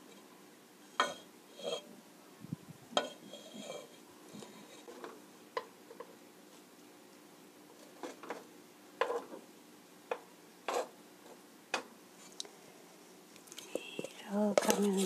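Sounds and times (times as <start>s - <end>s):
utensil tapping frying pan: 10.1s - 10.9s.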